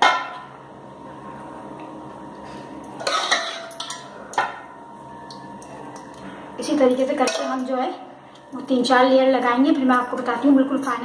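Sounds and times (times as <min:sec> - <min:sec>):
spoon clinking against metal pot: 0:03.0 - 0:04.6, 0:06.9 - 0:07.8.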